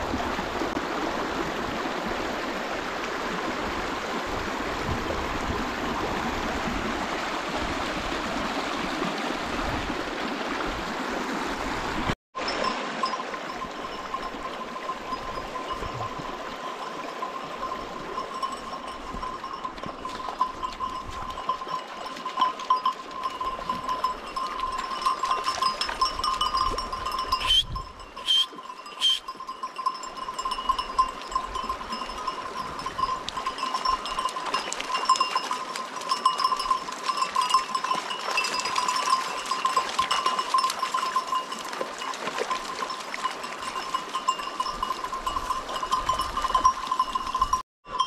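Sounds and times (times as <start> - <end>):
sheep bells clinking: 12.4 - 48.0.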